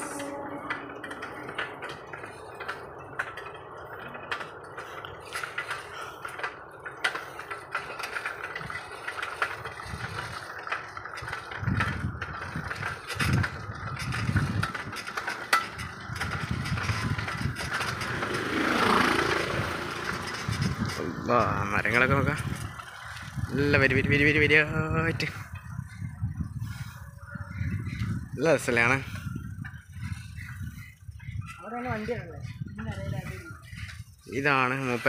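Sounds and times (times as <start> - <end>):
bicycle clicks and rattles: 0.0 - 35.0
low rumble: 15.8 - 28.4.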